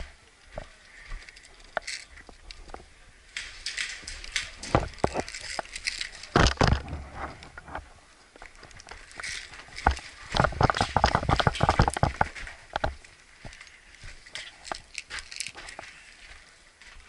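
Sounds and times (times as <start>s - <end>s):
footsteps: 0.0s - 17.0s
gear rattling: 1.2s - 7.9s, 8.5s - 16.0s.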